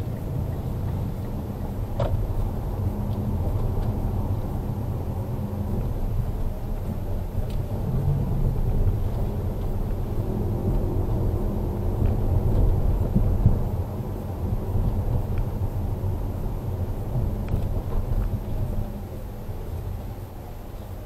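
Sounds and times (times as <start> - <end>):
car engine and tyre rumble: 0.0 - 21.0.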